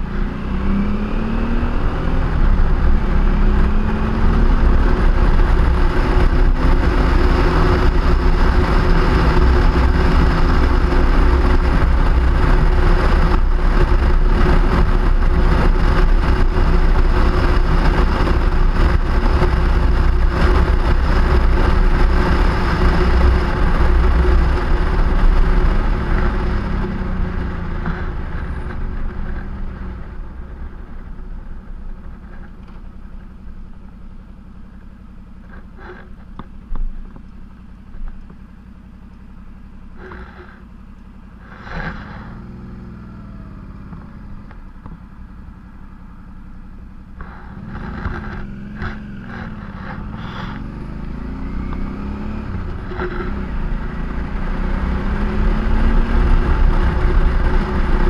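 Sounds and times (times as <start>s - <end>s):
engines revving: 0.0s - 32.5s, 41.4s - 45.3s, 47.0s - 58.0s
wind rumble on microphone: 0.0s - 33.2s, 47.1s - 58.0s.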